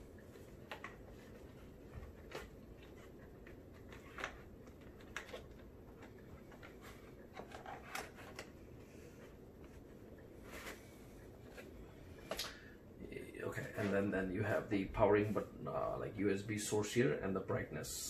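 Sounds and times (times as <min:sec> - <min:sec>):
plastic handling clicks and rubs: 0:00.0 - 0:12.4
low room hum: 0:00.0 - 0:18.0.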